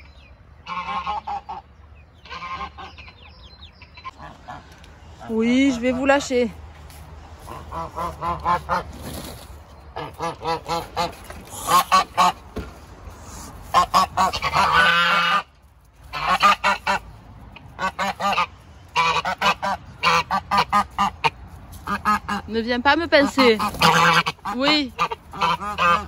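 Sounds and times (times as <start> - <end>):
geese honking: 0.0 - 6.6, 7.4 - 9.0, 9.9 - 12.5, 13.2 - 26.0.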